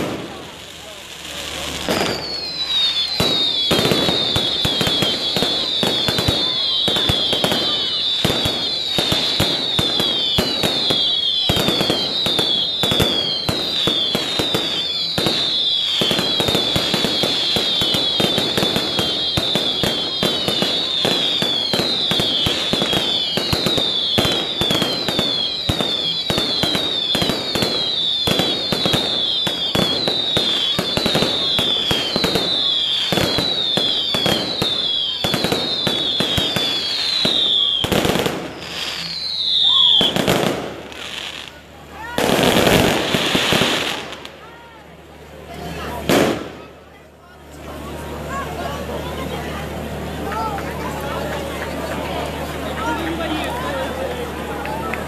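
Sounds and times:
fireworks bangs and crackles: 0.0s - 55.0s
falling whistles: 1.6s - 44.3s.

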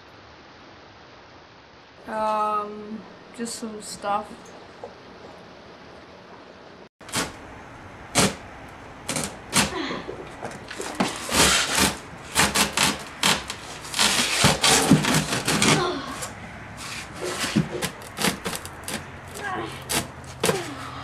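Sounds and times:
packing tape ripping off roll: 7.1s - 7.4s, 8.1s - 8.4s, 9.1s - 9.8s, 10.7s - 15.9s, 16.8s - 20.7s.

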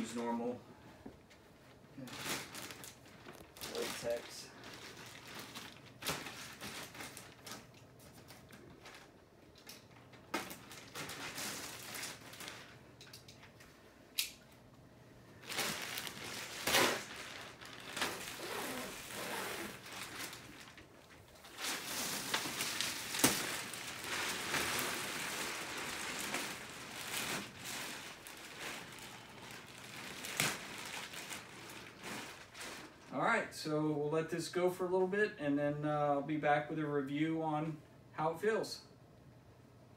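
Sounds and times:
plastic wrap crinkling: 2.0s - 13.6s, 15.3s - 33.1s.

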